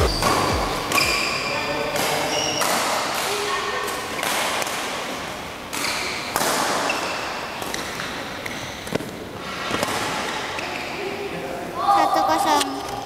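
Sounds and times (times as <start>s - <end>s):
shoes squeaking on court: 0.0s - 2.8s, 10.5s - 11.1s
rackets hitting shuttlecock: 0.0s - 5.1s, 5.7s - 10.8s.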